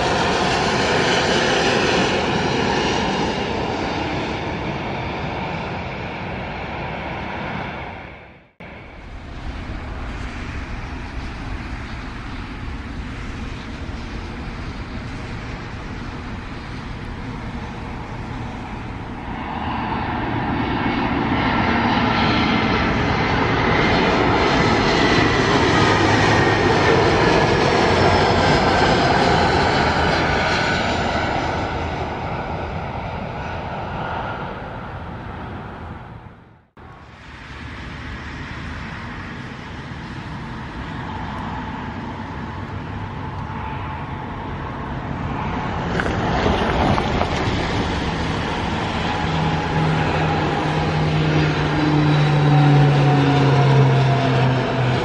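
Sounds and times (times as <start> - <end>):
high engine whine: 0.0 - 55.0
jet engines passing low: 0.0 - 55.0.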